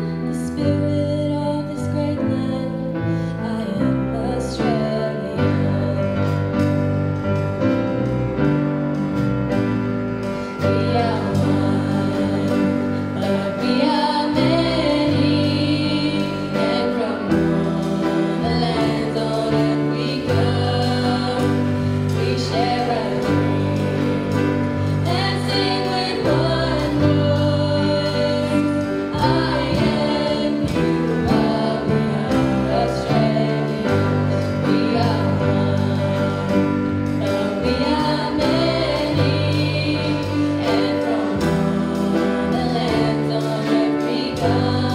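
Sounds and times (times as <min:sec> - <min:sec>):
girls singing lead into microphones: 0:00.0 - 0:07.8, 0:09.0 - 0:44.9
sustained chords: 0:05.5 - 0:44.9
children's choir singing: 0:10.4 - 0:44.9.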